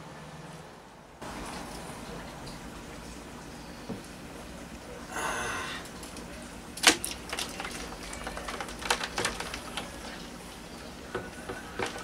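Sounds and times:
crab claws clicking on plastic tub: 0:06.8 - 0:10.0.

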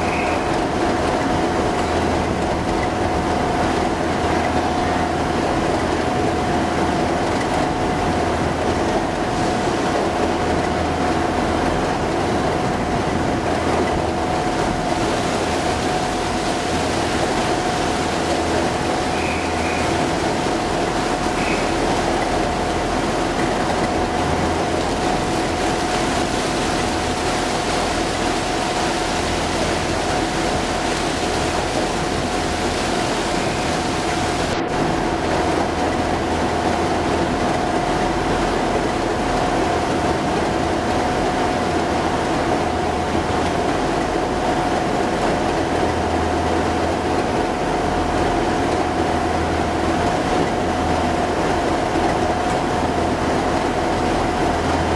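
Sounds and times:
diesel locomotive idling: 0:00.0 - 0:40.0.

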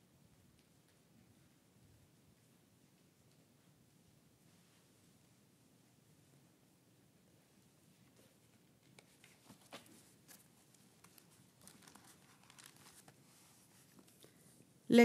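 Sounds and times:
faint page rustling: 0:07.9 - 0:14.8.

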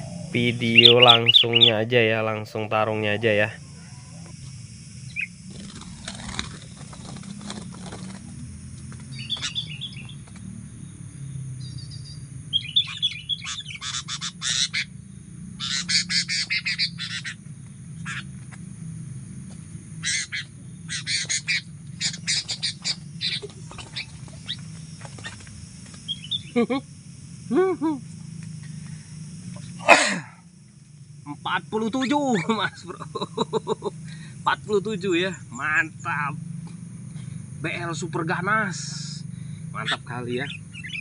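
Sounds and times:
wing flapping and scuffling: 0:03.4 - 0:10.5, 0:19.4 - 0:26.6.

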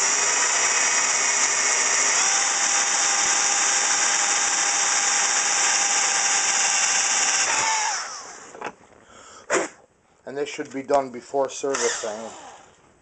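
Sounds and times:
drill press whining: 0:00.0 - 0:08.8, 0:11.7 - 0:12.8.

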